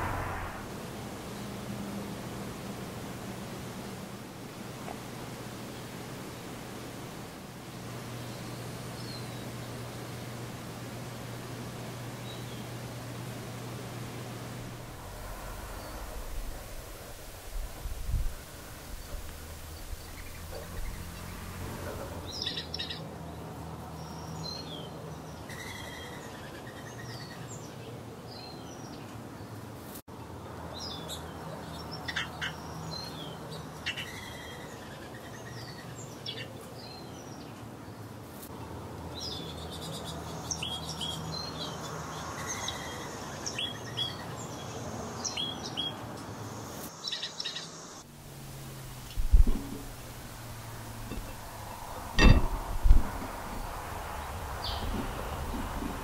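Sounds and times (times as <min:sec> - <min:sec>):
low steady hum: 0:00.0 - 0:22.3
songbirds chirping: 0:00.0 - 0:56.0.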